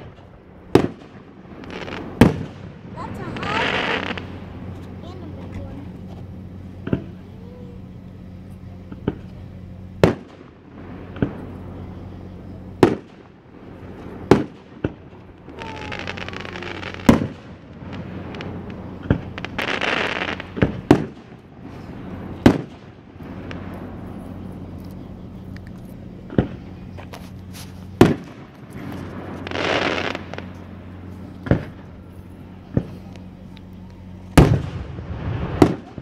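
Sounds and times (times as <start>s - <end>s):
firework shells bursting: 0.0s - 4.9s, 12.8s - 36.0s
firework hissing: 0.0s - 9.4s, 10.0s - 36.0s.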